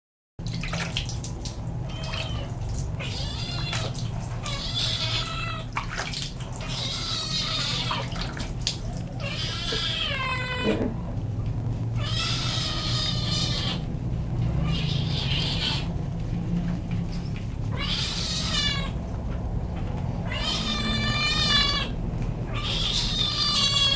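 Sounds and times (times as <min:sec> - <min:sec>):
kitten meowing: 0:01.9 - 0:05.7, 0:06.6 - 0:08.4, 0:09.2 - 0:10.9, 0:12.0 - 0:13.9, 0:14.6 - 0:15.9, 0:17.7 - 0:19.0, 0:20.2 - 0:23.9.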